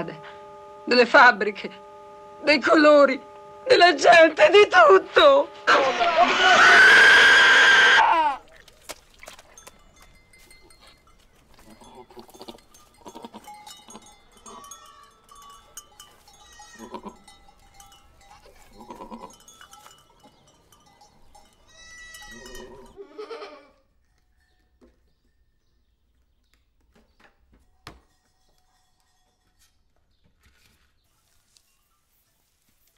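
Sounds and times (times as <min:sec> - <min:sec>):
goats bleating: 0:05.7 - 0:08.5, 0:11.6 - 0:15.2, 0:16.3 - 0:17.3, 0:18.4 - 0:19.5, 0:21.6 - 0:23.8
goat bells clinking: 0:08.4 - 0:26.5, 0:27.6 - 0:30.5.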